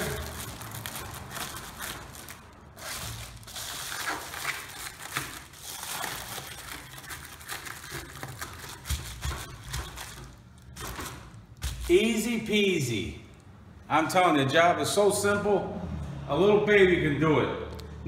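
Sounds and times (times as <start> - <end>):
foil insulation crinkling: 0.0 - 12.5.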